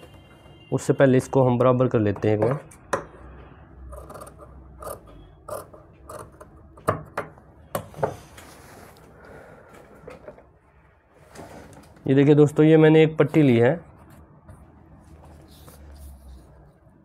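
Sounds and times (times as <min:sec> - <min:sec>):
fabric rustling: 0:08.2 - 0:09.1, 0:15.0 - 0:17.0.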